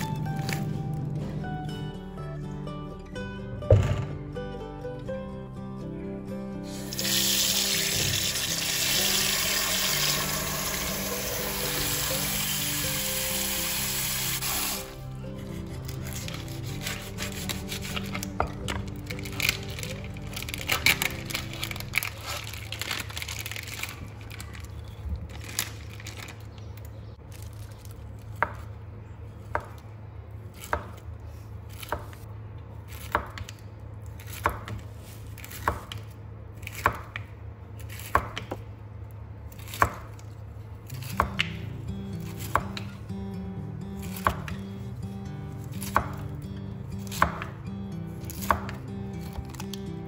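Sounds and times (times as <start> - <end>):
plastic packet crinkling: 18.9 - 26.8.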